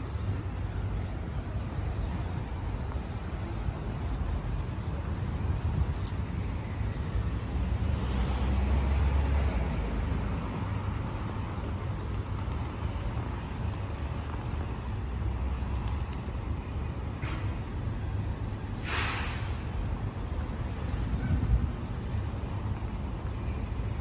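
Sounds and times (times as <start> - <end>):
traffic rumble: 0.0 - 24.0
vehicle passing: 7.0 - 16.0.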